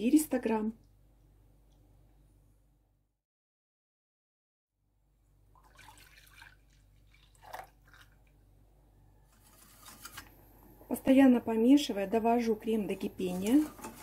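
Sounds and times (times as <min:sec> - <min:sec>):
kitchen utensils clicking and scraping: 0:13.0 - 0:14.0.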